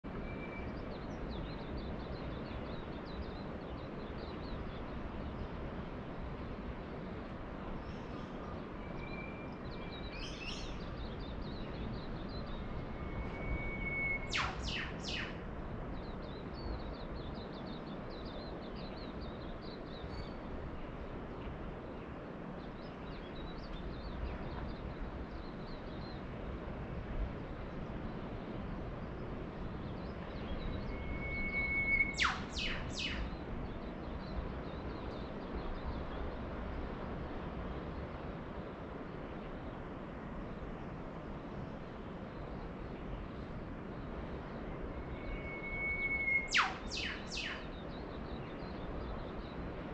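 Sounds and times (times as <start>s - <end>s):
small birds twittering: 0.1s - 21.2s, 27.6s - 36.8s, 41.6s - 49.9s
distant surf: 0.1s - 49.9s
bird downward-sweeping whistles: 12.6s - 15.4s, 30.7s - 33.4s, 44.9s - 47.8s.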